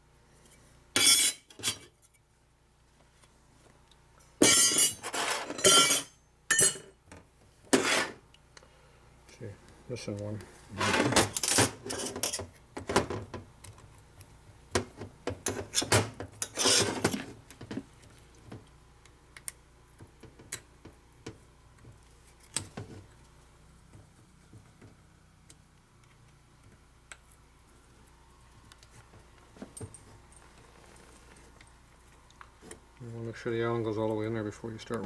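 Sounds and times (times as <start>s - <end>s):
metal parts and tools clinking: 4.4s - 6.9s, 10.8s - 12.4s.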